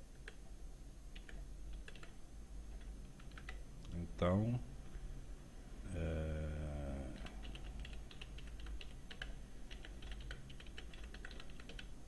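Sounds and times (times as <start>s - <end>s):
faint low hum: 0.0s - 12.0s
keyboard typing: 1.1s - 3.6s, 7.0s - 12.0s.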